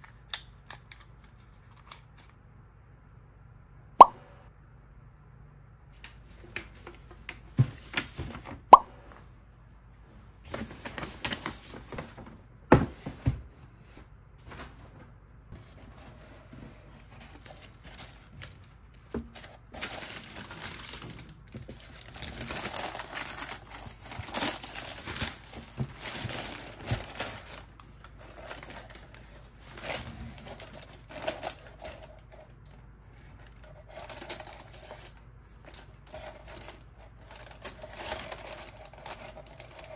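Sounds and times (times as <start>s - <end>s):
tissue paper rustling: 10.4s - 39.9s
cardboard box handled and opened: 10.5s - 15.0s, 19.1s - 27.6s, 28.2s - 32.4s.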